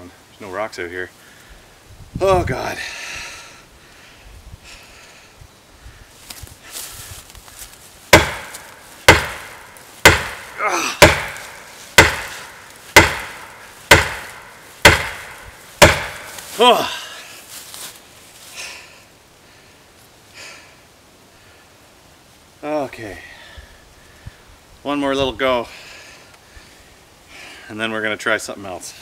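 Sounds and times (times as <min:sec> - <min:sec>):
axe handle knocking on tree trunk: 0:08.2 - 0:16.5
man's strained voice: 0:10.5 - 0:11.1, 0:16.5 - 0:17.2
man groaning: 0:10.6 - 0:11.1, 0:16.5 - 0:17.3.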